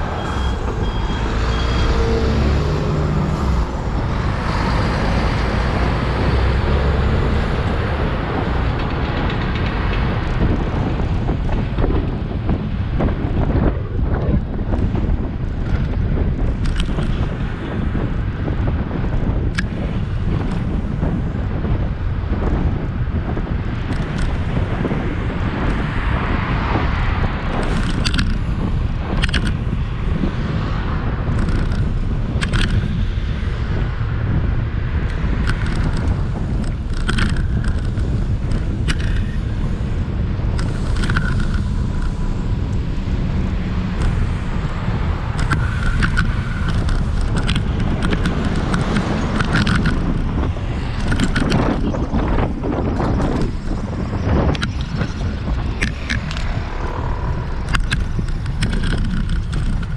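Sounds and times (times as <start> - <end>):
wind rumble on microphone: 0.0 - 59.9
sharp clicks: 35.1 - 39.4, 45.3 - 53.8, 54.5 - 57.0, 57.6 - 59.9.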